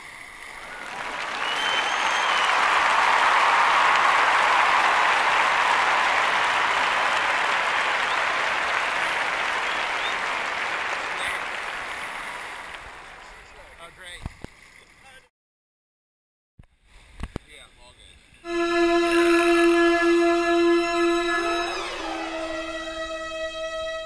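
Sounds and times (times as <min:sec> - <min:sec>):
crowd applauding: 0:00.5 - 0:13.9, 0:18.5 - 0:24.0.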